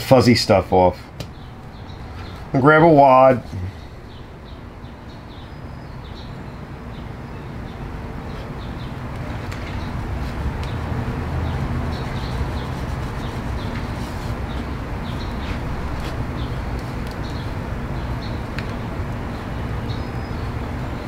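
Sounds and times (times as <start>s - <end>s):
low motor hum: 3.4s - 21.0s.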